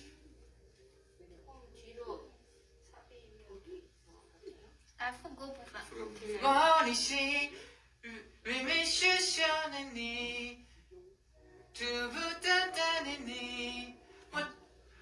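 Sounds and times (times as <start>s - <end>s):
person singing unaccompanied: 6.2s - 10.6s, 11.6s - 14.8s.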